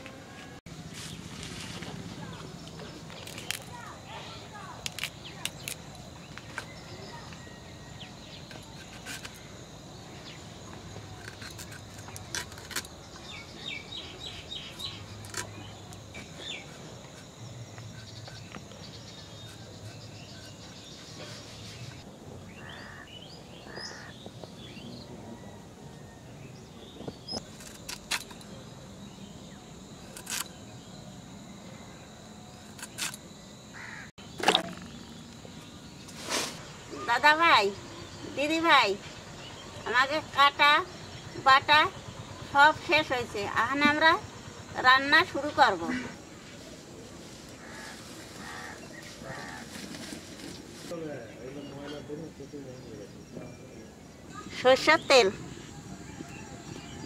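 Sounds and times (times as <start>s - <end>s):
outdoor background noise: 0.0s - 57.0s
birds chirping: 2.1s - 27.5s, 28.3s - 57.0s
blade cutting and peeling vegetable: 4.8s - 5.9s, 8.4s - 9.4s, 11.0s - 13.0s, 14.7s - 21.6s, 27.4s - 28.5s, 30.0s - 30.6s, 32.6s - 33.2s.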